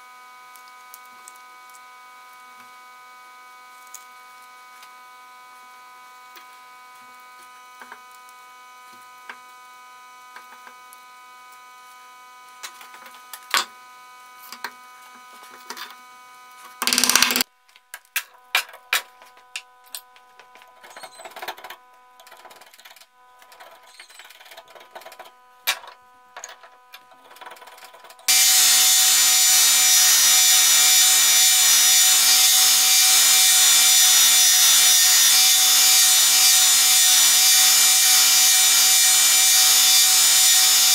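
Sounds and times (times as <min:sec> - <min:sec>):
belt grinder grinding wood: 0:16.8 - 0:17.4, 0:20.7 - 0:40.9
handwork clicks and knocks: 0:16.8 - 0:17.4.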